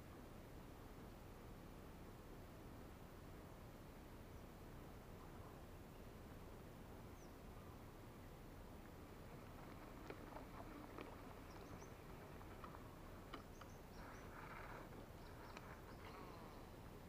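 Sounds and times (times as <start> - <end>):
soft clicks: 9.7 - 16.2.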